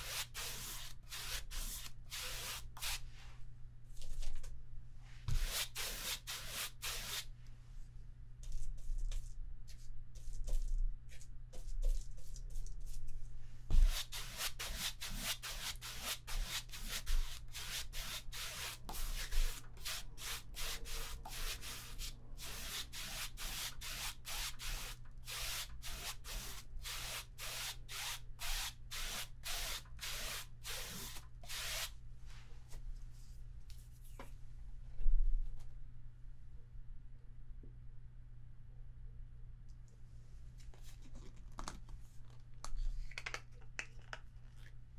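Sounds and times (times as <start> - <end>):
paintbrush scrubbing canvas: 0.0 - 3.0, 5.3 - 7.3, 13.7 - 31.9
faint low hum: 31.2 - 44.9.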